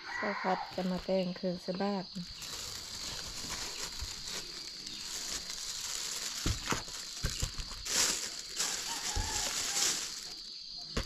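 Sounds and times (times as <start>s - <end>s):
plastic wrappers crinkling: 2.2s - 11.0s.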